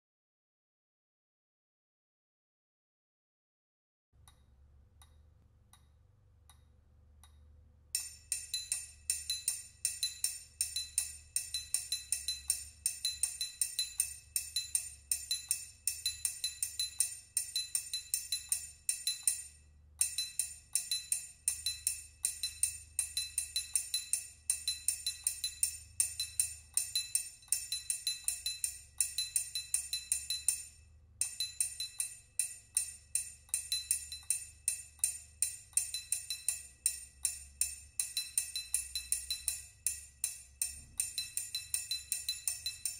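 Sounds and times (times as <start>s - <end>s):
triangle struck rhythmically: 8.0s - 42.9s.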